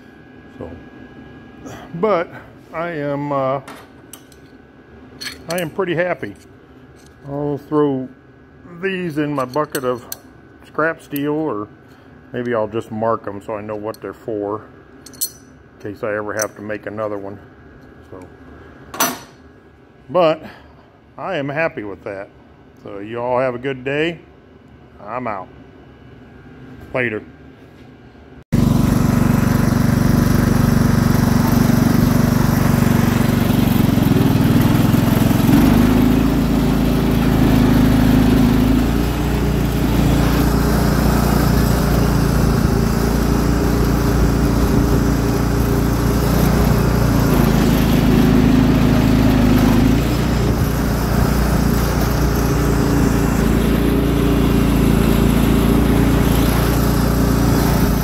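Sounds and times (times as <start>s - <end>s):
lawn tractor engine running: 28.6s - 58.0s.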